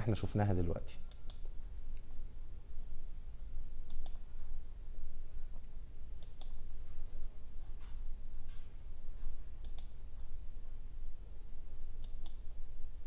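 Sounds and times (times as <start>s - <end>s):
steady low hum: 0.0s - 13.0s
sharp clicks: 3.8s - 4.2s, 6.2s - 6.6s, 9.6s - 10.0s.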